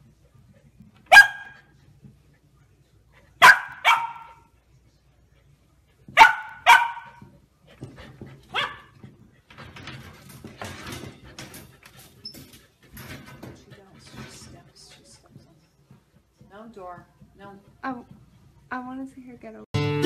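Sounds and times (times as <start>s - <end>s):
puppy barking: 1.1s - 1.7s, 3.4s - 4.5s, 6.2s - 7.3s, 8.5s - 9.0s.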